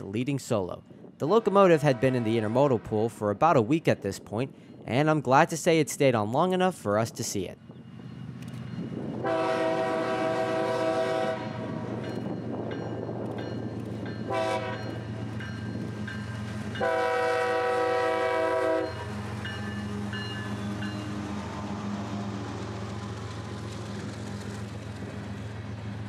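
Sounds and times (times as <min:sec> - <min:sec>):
train cars rolling past: 0:07.6 - 0:26.0
train horn: 0:09.2 - 0:11.8, 0:14.3 - 0:15.0, 0:16.8 - 0:19.1.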